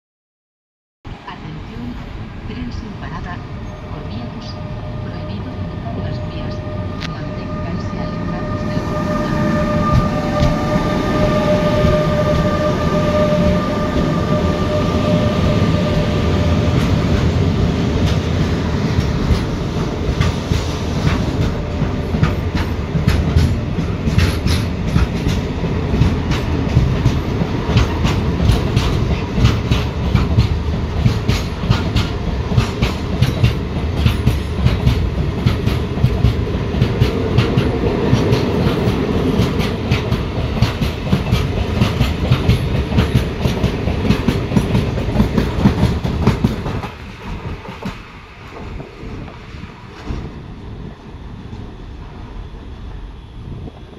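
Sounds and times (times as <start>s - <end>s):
electric locomotives whining: 1.4s - 53.9s.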